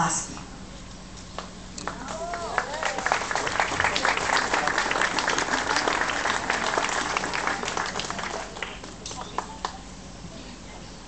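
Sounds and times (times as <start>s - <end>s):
audience applauding: 1.8s - 9.8s.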